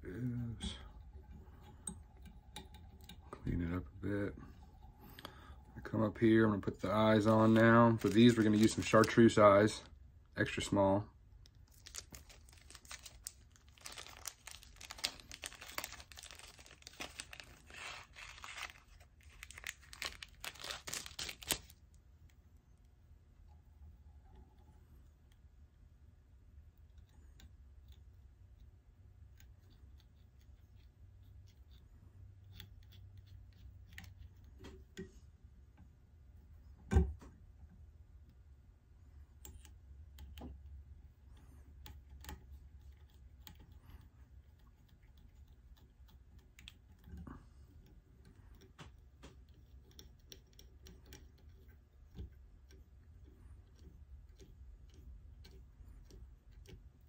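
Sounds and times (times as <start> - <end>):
low steady hum: 0.0 - 57.0
clicks and rustles of hands: 6.9 - 9.7, 11.4 - 22.4.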